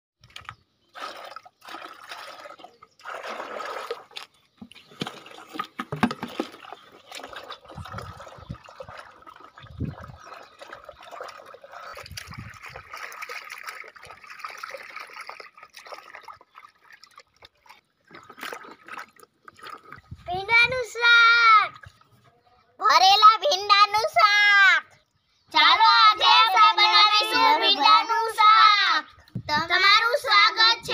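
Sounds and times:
hands splashing in water: 0.2s - 20.2s
water pouring into plastic tub: 0.2s - 20.3s.

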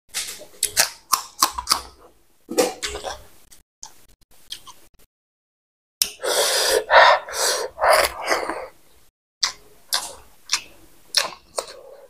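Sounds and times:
mouth smacks: 6.0s - 8.7s.

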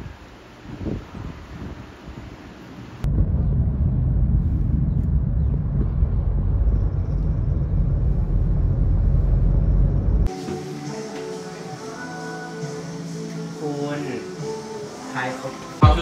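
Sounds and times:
car cabin road and engine rumble: 5.4s - 10.3s.

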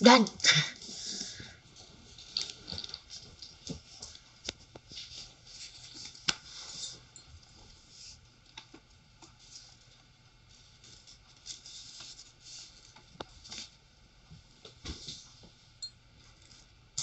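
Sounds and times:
paper folding and rustling: 8.0s - 13.8s.

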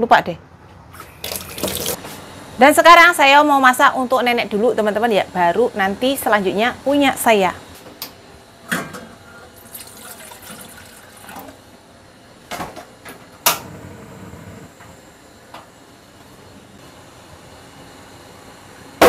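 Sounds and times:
gas flame hissing: 13.4s - 15.0s.

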